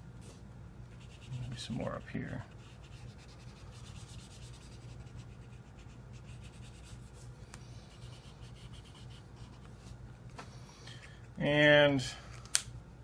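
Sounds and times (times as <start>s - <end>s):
marker scrubbing on paper: 0.9s - 9.9s.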